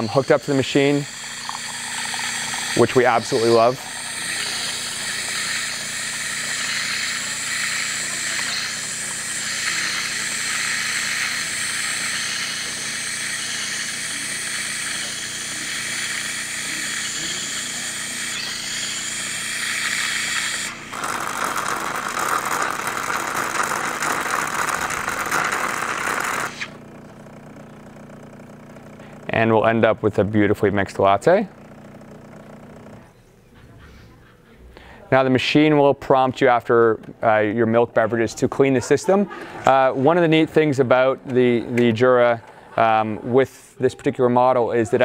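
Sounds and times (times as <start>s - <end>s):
espresso machine hissing: 0.0s - 29.8s, 30.4s - 33.1s, 38.0s - 45.0s
liquid pouring into glass: 0.1s - 11.6s.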